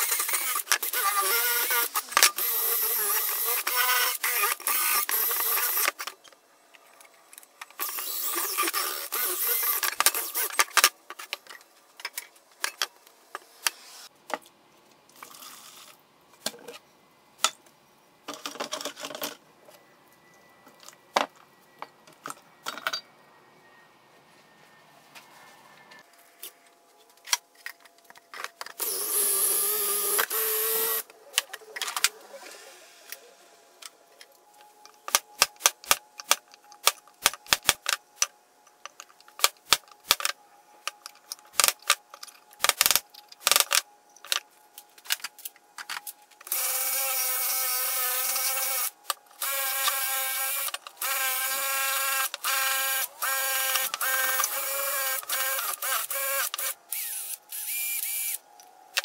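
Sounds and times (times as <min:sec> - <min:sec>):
cordless drill with wire brush: 0:00.0 - 0:06.0, 0:07.8 - 0:10.6, 0:28.8 - 0:31.0, 0:46.5 - 0:58.4.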